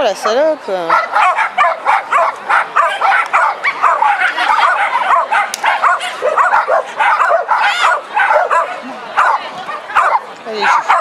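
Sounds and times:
dog yapping: 0.2s - 11.0s.

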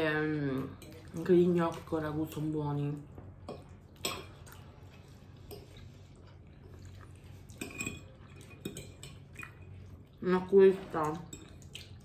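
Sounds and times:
wet chewing: 3.6s - 10.2s, 11.3s - 12.0s.

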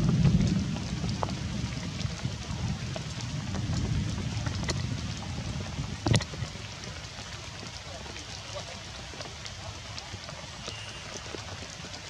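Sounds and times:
steady rain hiss: 0.0s - 12.0s.

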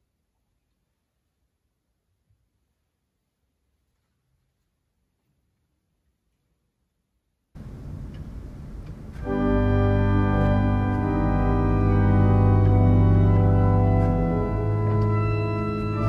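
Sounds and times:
organ chords: 7.6s - 16.0s.

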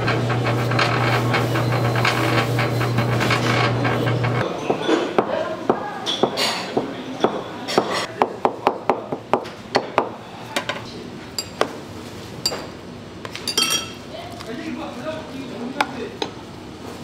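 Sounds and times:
low background murmur: 4.4s - 11.8s.

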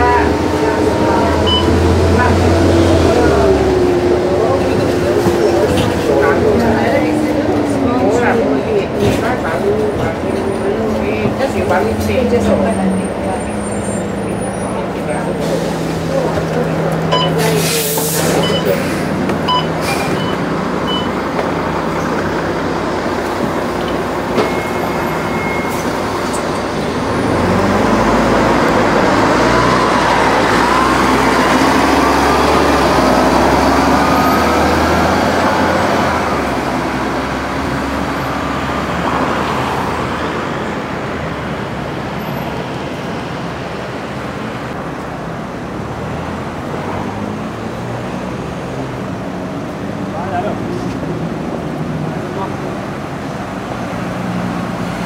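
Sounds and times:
bus engine accelerating: 0.0s - 55.0s
road traffic noise: 0.0s - 55.0s
short beeps: 1.4s - 1.8s, 17.1s - 17.4s, 18.4s - 18.8s, 19.5s - 21.2s, 24.4s - 25.8s.

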